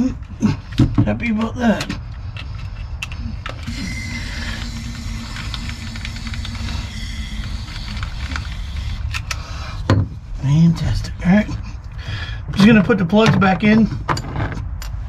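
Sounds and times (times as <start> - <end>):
low rumble: 3.3 - 12.6
aerosol spray hissing: 3.7 - 9.1.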